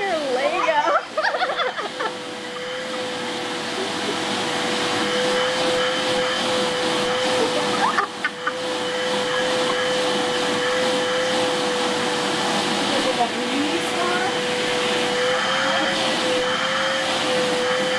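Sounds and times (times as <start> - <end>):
vacuum cleaner whine: 0.0 - 17.9.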